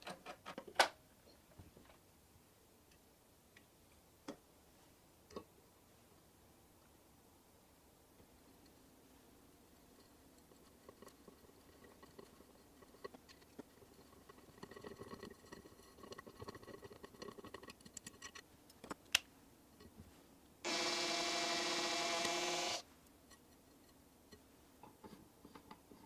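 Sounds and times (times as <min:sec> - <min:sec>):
drill whining: 0:20.7 - 0:22.8.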